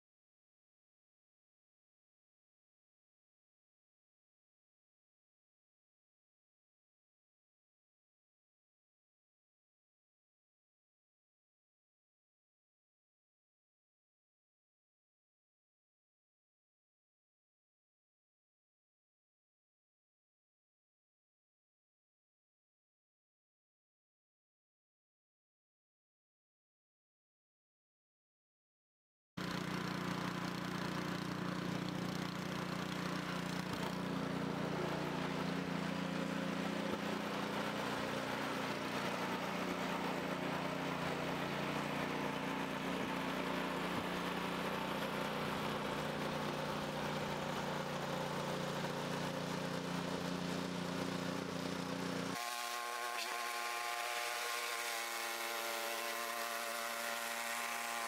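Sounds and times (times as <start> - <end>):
small engine running: 29.4 - 58.0.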